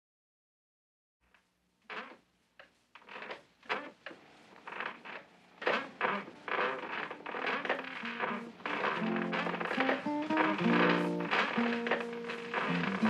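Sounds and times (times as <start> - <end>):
shoes tapping on wooden boards: 5.7 - 13.0.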